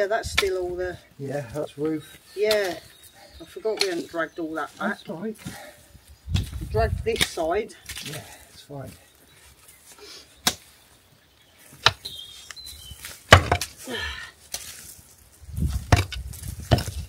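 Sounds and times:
digging tool striking stony ground: 6.3 - 8.2, 10.4 - 10.7, 13.1 - 13.8, 15.7 - 17.0.

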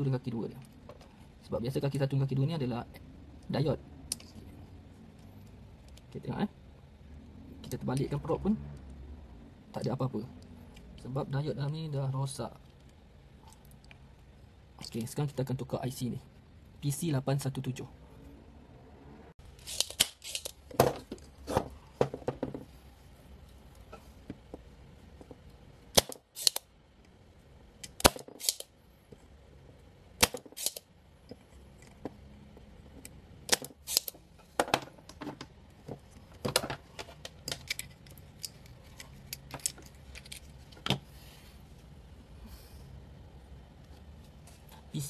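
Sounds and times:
desoldering pump snapping: 19.6 - 21.3, 25.9 - 27.1, 27.8 - 28.7, 30.2 - 32.0, 33.0 - 34.2, 37.2 - 41.0.

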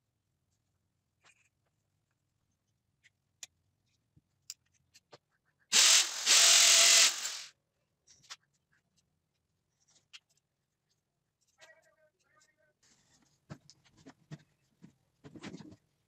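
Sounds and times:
electric drill boring into wall: 5.7 - 7.5.

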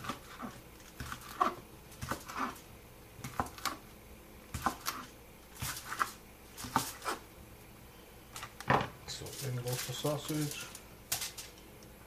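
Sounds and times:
knife cutting on a board: 0.0 - 2.6, 3.2 - 3.8, 4.6 - 7.2.

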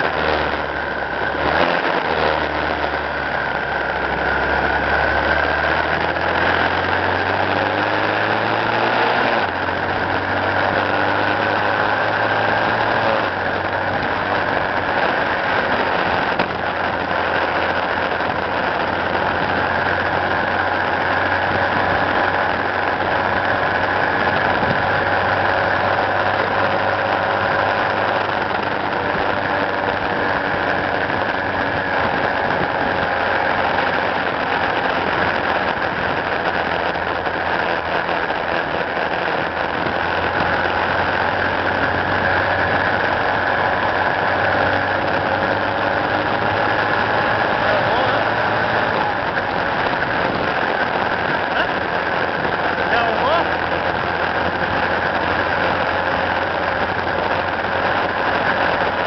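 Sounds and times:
road noise: 0.0 - 59.0
vehicle engine running: 0.0 - 59.0.

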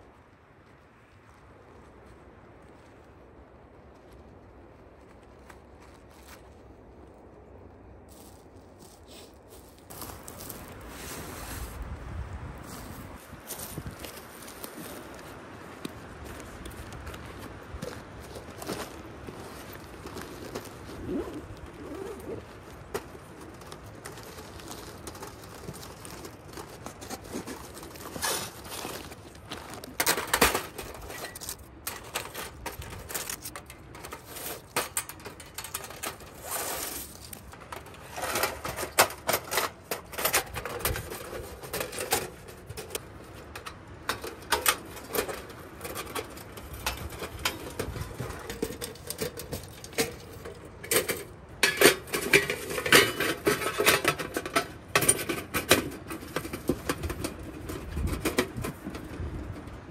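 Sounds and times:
thin metal panels clinking: 24.2 - 58.8.

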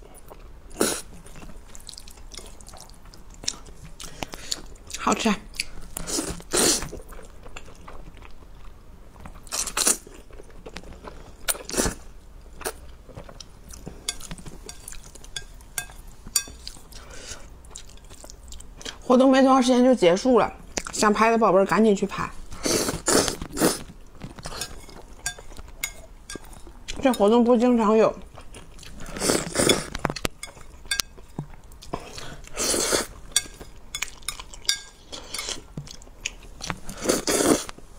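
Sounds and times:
chewing with wet mouth sounds: 0.0 - 19.0, 28.2 - 37.8
person slurping noodles: 22.6 - 23.8, 29.0 - 29.9, 32.1 - 33.1, 36.9 - 37.7
slurping noodles: 36.9 - 37.7.

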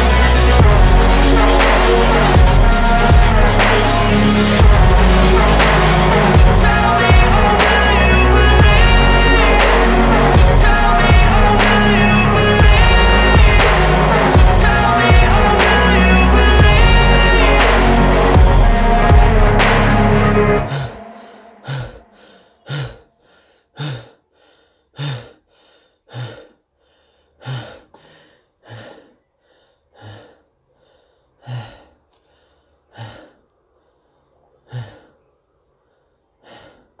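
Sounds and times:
person gasping: 20.6 - 35.2, 35.8 - 37.0.

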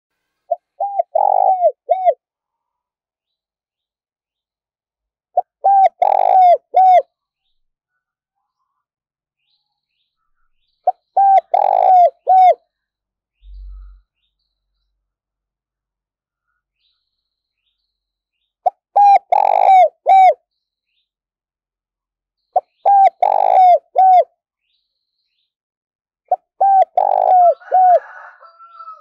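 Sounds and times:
dove cooing: 0.5 - 2.2, 5.4 - 7.1, 11.1 - 12.6, 18.9 - 20.4, 22.6 - 24.3, 26.3 - 29.0.

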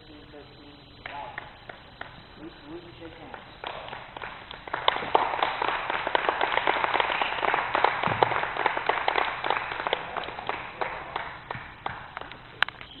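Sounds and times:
audience applauding: 1.0 - 13.0.

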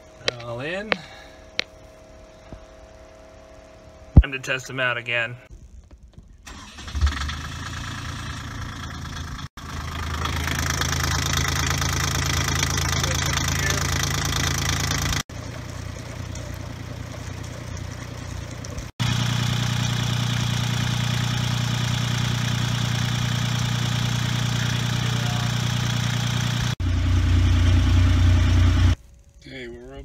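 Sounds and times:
marine diesel engine running: 7.0 - 29.0.

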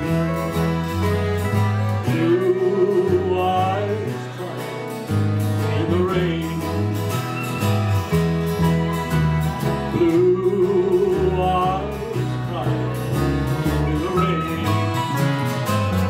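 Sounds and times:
country band playing live: 0.0 - 16.0
strummed acoustic guitars: 0.0 - 16.0
wavering lead melody: 0.0 - 16.0.

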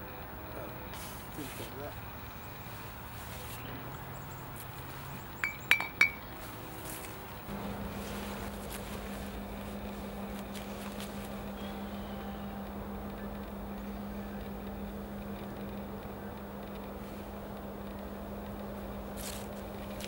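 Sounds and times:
steady low hum: 0.0 - 20.0
glass bottle clinking glass: 5.4 - 6.2.

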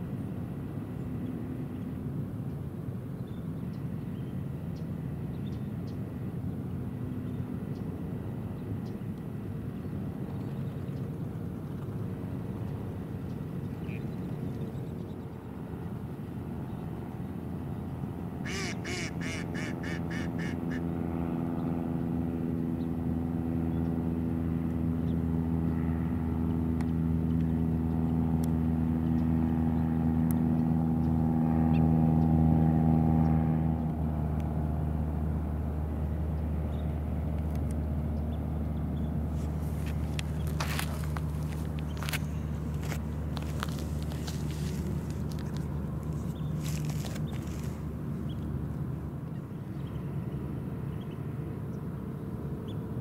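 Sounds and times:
engine drone: 0.0 - 53.0
duck quacking: 18.5 - 20.8.

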